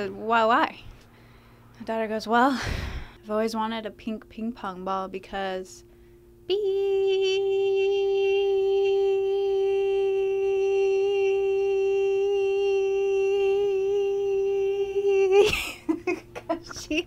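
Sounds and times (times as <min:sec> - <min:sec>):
woman humming long note: 0:06.5 - 0:15.6.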